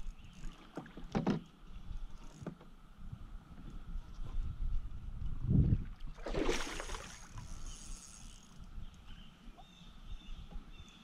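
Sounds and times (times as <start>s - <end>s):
cicadas droning: 0.0s - 3.6s, 6.7s - 11.0s
fish splashing at the surface: 6.2s - 7.4s.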